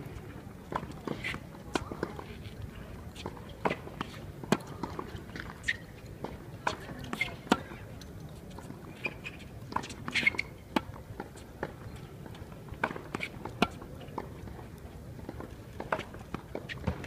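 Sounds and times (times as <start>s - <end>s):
faint spectator chatter: 0.2s - 5.3s, 6.1s - 10.5s
tennis balls struck and bouncing: 9.7s - 14.6s, 15.2s - 17.0s.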